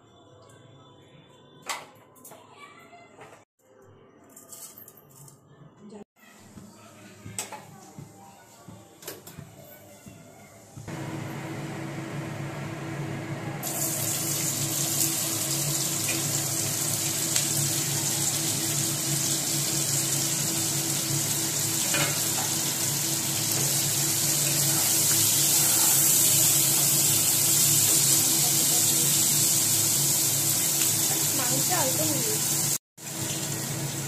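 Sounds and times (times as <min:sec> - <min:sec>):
onions sizzling in hot oil: 0:13.6 - 0:34.0.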